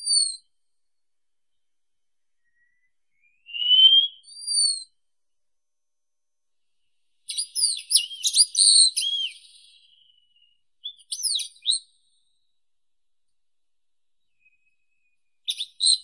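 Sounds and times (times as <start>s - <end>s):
bird whistling song: 0.0s - 0.5s, 2.4s - 5.0s, 7.3s - 12.2s, 14.2s - 16.0s.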